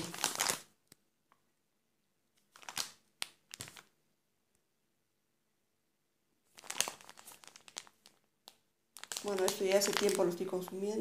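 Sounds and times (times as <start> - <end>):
plastic bag rustling: 0.0 - 0.7, 6.5 - 8.3, 9.0 - 11.0.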